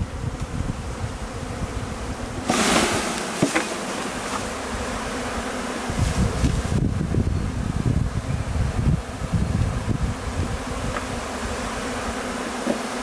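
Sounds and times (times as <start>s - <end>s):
honeybee swarm buzzing: 0.0s - 13.0s
rustling leaves: 2.0s - 12.1s.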